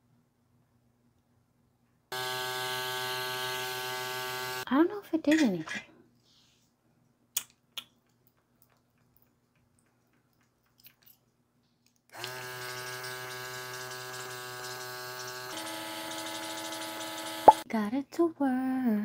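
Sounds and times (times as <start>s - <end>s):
small compressor motor hum: 2.1s - 4.7s, 12.2s - 17.6s.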